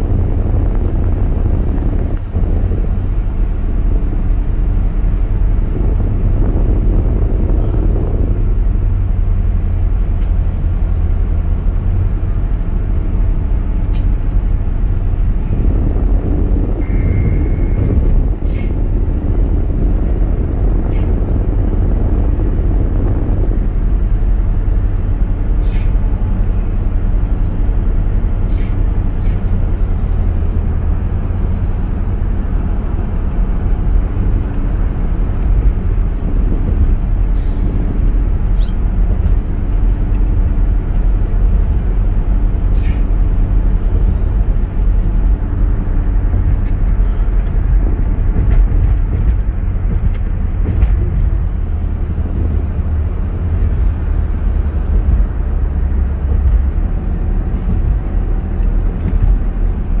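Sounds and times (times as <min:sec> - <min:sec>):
car driving at highway speed: 0:00.0 - 1:00.0.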